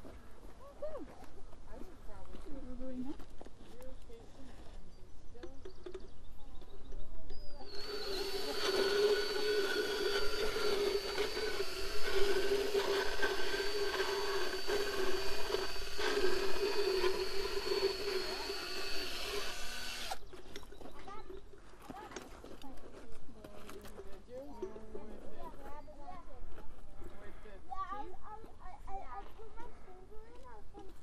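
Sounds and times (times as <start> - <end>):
motor whine: 7.6 - 20.2
rasping grinding of teeth: 7.7 - 20.2.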